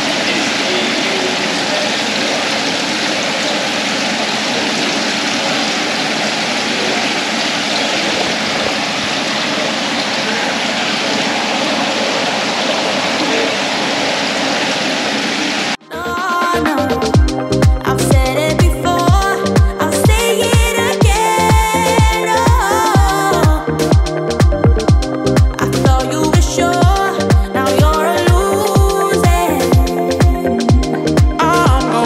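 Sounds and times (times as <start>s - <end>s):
water pouring into tank: 0.0s - 15.8s.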